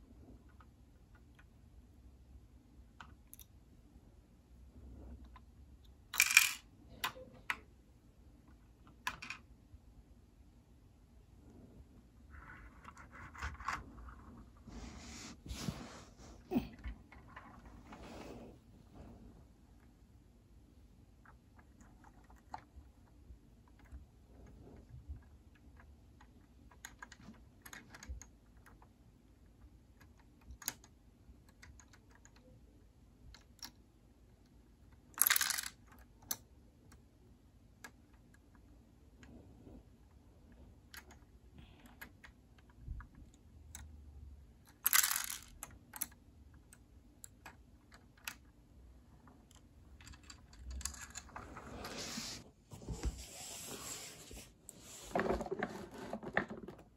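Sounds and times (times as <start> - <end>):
plastic toy bricks clicking: 6.1 - 7.2, 34.8 - 36.4, 44.6 - 48.5
plastic toy rattles: 6.1 - 7.2, 35.1 - 36.0, 44.7 - 46.1.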